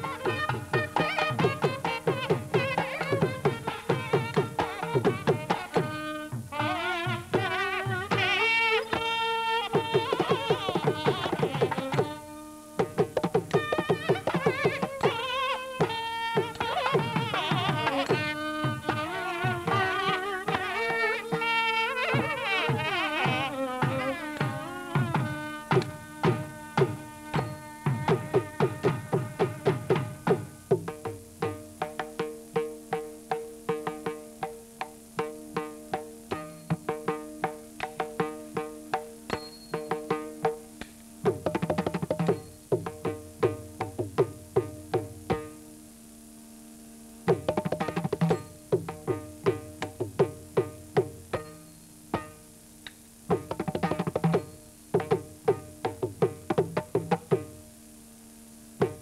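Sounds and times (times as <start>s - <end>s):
hand drum solo: 0.0s - 45.6s, 47.2s - 52.4s, 53.2s - 57.6s, 58.8s - 59.0s.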